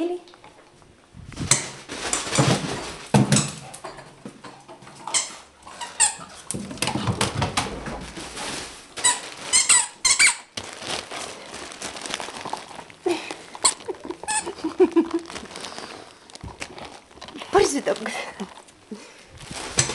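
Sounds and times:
dogs scrambling over carpet: 1.4s - 4.9s, 6.2s - 9.9s.

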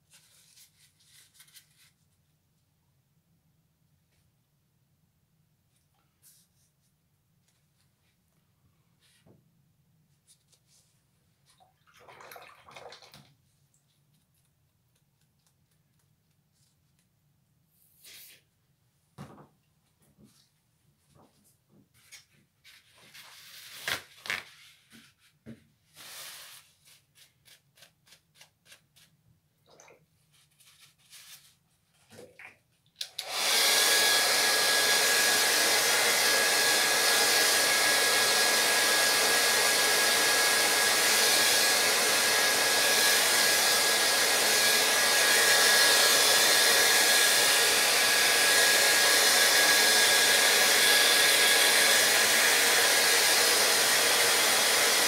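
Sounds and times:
hair dryer blowing: 33.0s - 55.0s.

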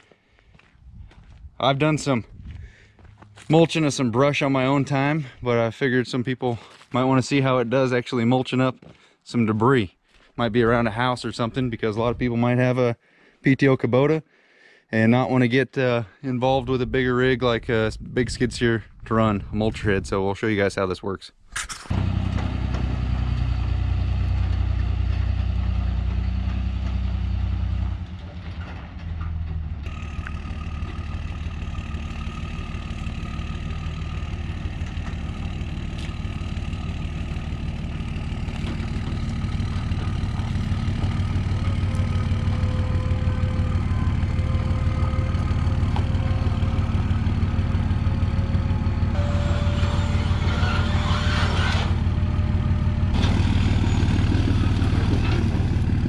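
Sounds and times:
diesel engine running: 21.9s - 56.0s
hydraulic lift whining: 29.9s - 55.5s.

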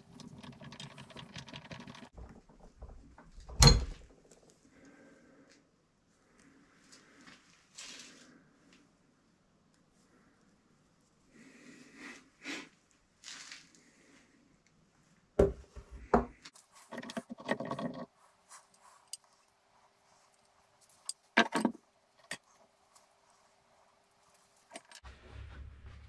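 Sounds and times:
tools rustling and clinking: 16.5s - 19.5s, 20.2s - 22.7s, 24.2s - 25.0s
rattling scrape: 16.8s - 18.2s.

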